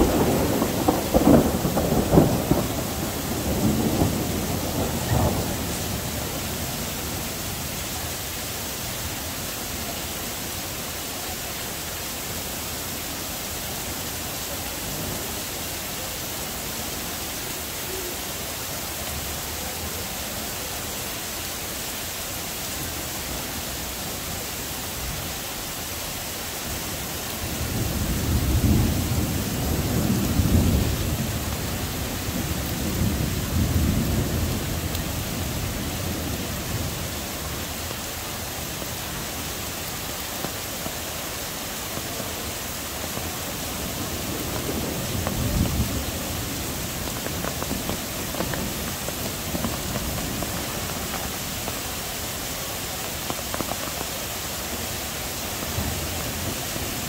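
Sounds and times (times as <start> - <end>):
thunder rumbling: 0.0 - 8.4, 27.1 - 40.6, 41.9 - 54.1
heavy rain downpour: 0.0 - 57.0.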